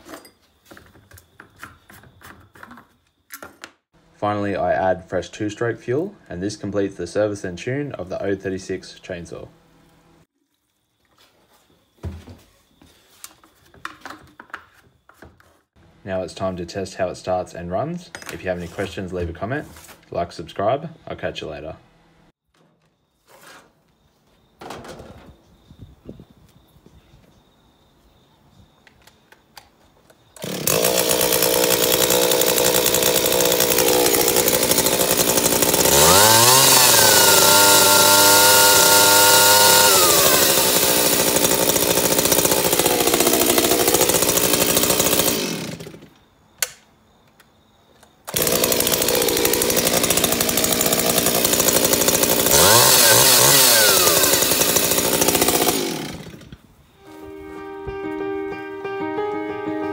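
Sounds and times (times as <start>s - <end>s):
chainsaw idling and revving: 30.4s - 46.1s, 48.3s - 56.6s.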